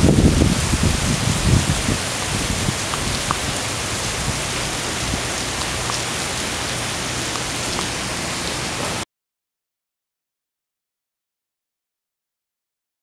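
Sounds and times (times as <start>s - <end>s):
heavy rain on pavement: 0.0s - 9.0s
raindrops ticking: 1.4s - 9.0s.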